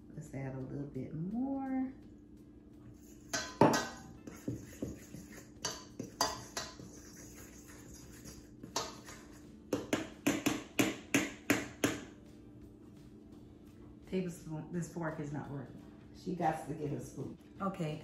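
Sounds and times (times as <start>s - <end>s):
fork scraping metal bowl: 2.9s - 10.0s.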